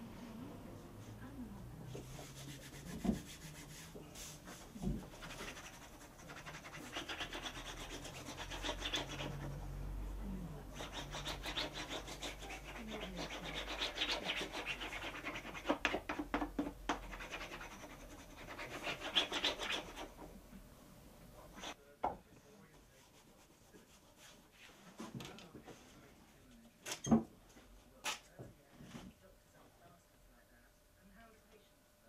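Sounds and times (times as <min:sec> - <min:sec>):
folder rubbing along paper: 0:02.1 - 0:09.6, 0:17.0 - 0:20.2.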